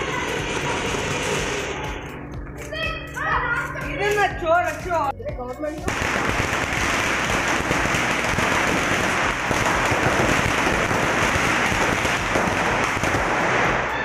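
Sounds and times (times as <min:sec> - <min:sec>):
firework crackling hiss: 0:00.0 - 0:02.2, 0:05.9 - 0:14.0.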